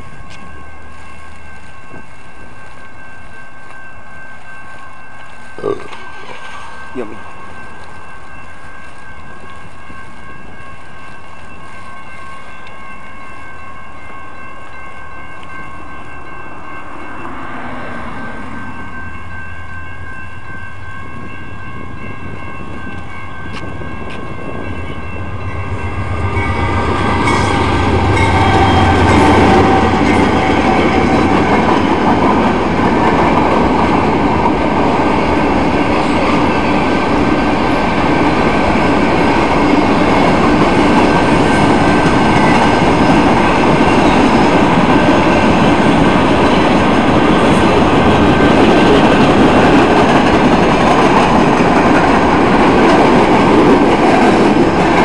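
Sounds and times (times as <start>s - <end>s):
railroad crossing bell ringing: 0.0s - 55.0s
train passing: 0.0s - 55.0s
wheels clattering on rails: 18.8s - 55.0s.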